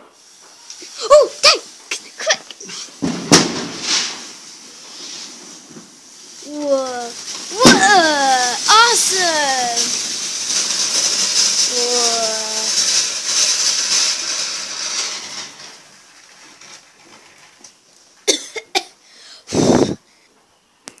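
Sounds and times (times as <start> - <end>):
firework fountain crackling hiss: 0.0 - 20.2.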